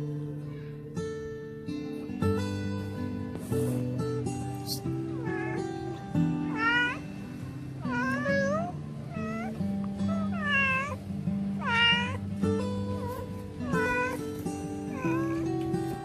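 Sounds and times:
cat meowing: 0:04.6 - 0:07.0, 0:07.8 - 0:11.0, 0:11.6 - 0:12.2, 0:12.9 - 0:16.0.

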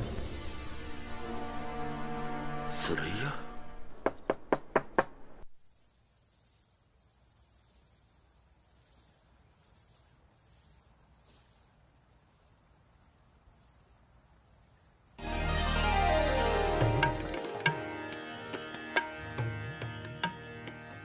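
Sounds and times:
crickets chirping: 0:05.6 - 0:15.2
loud music: 0:15.2 - 0:21.0.

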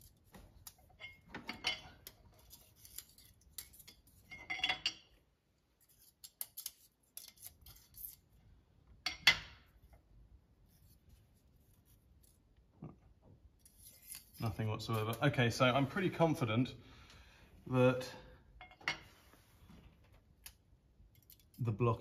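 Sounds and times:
metal tools clicking and scraping: 0:00.0 - 0:05.2, 0:05.8 - 0:08.2, 0:21.1 - 0:21.7.

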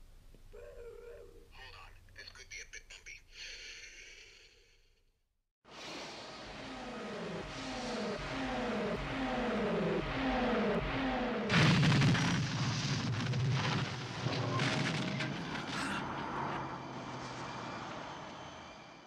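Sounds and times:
falling electronic whooshes: 0:05.7 - 0:13.1
loud rushing car: 0:05.7 - 0:19.0.

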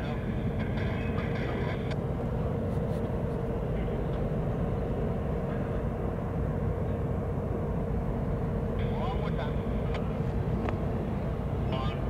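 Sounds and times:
diesel locomotives rumbling: 0:00.0 - 0:12.0.

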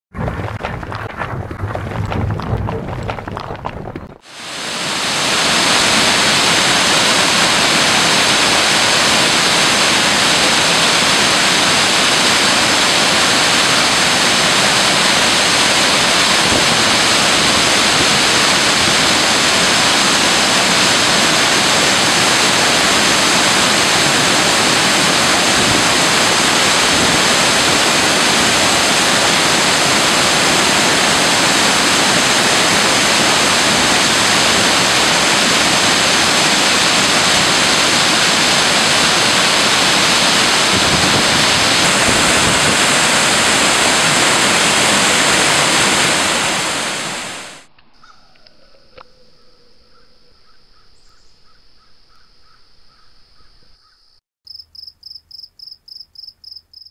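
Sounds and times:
waterfall rushing: 0:04.2 - 0:47.7.

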